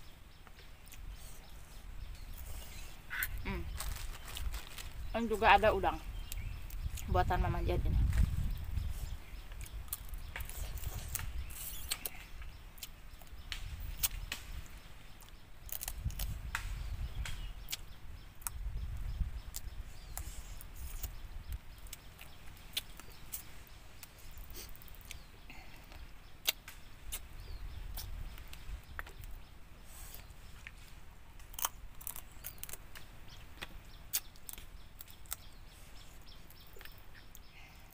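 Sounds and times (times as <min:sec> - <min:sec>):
chewing with crunches: 0:08.2 - 0:13.3, 0:19.4 - 0:30.8, 0:31.4 - 0:33.0, 0:33.6 - 0:37.9.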